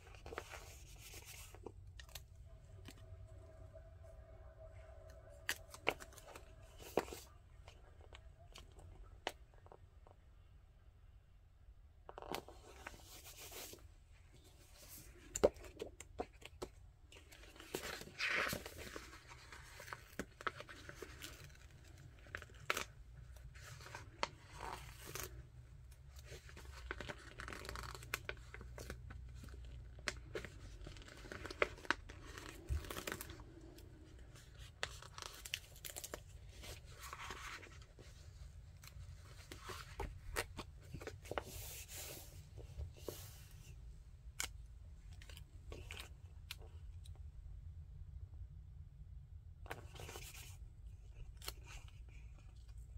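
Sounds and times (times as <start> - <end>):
paper pages rustling: 5.4 - 8.7, 12.2 - 43.7.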